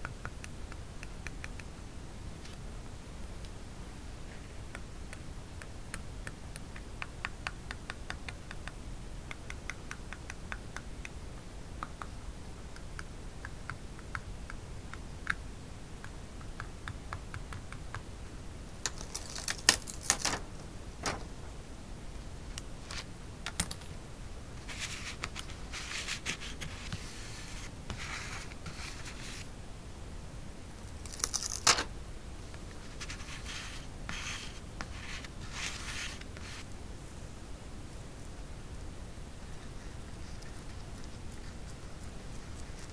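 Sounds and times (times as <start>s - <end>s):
tool and fingernails tapping paper: 5.6s - 11.2s
paper rustling: 18.9s - 21.3s, 24.6s - 29.5s, 30.9s - 31.9s.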